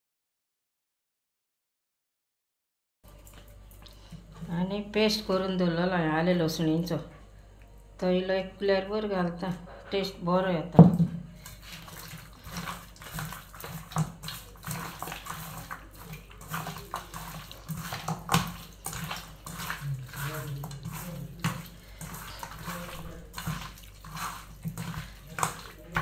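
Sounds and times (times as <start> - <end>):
meat squelching and slapping: 11.3 - 26.0.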